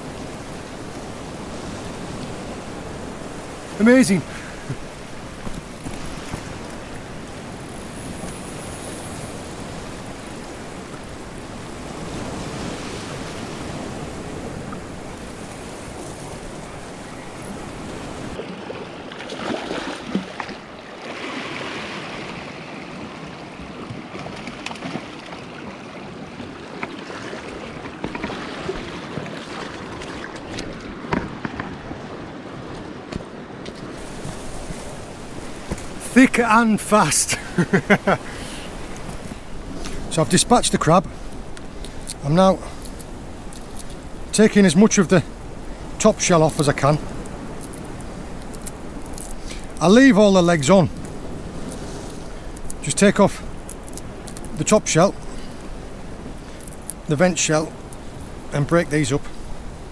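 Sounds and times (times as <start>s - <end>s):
sea water washing over rocks: 0.0s - 59.9s
fish splashing in shallows: 18.4s - 22.4s.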